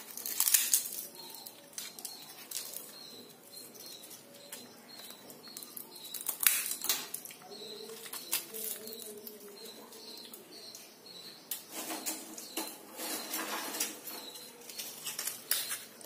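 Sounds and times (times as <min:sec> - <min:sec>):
crisp snacks crackling and snapping: 0:00.0 - 0:10.9, 0:14.3 - 0:16.0.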